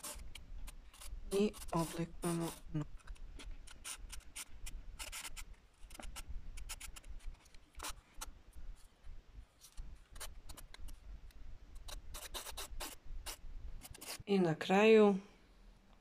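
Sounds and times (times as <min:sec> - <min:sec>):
nail file rasping on nails: 0:11.8 - 0:14.2.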